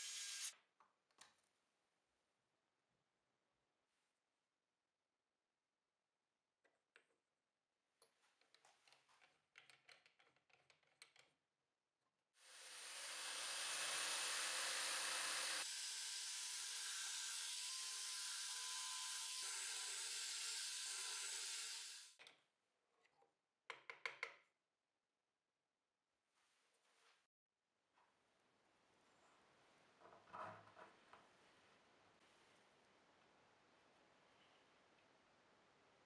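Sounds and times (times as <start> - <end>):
power tool cutting wood: 0.0 - 0.5, 12.6 - 22.2.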